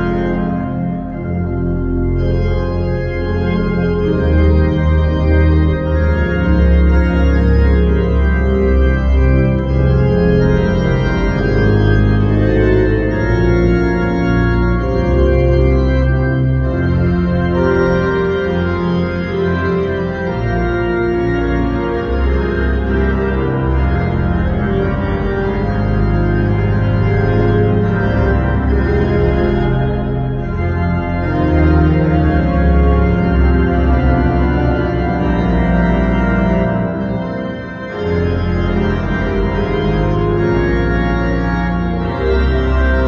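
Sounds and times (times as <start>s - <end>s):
church organ playing chords: 0.0s - 43.0s.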